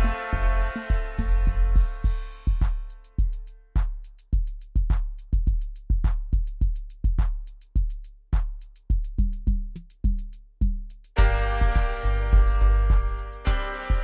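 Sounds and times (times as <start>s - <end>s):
deep bass drum hits: 0.0s - 3.3s, 11.2s - 14.0s
crisp hi-hat ticks: 0.0s - 14.0s
short low pitched notes: 11.2s - 14.0s.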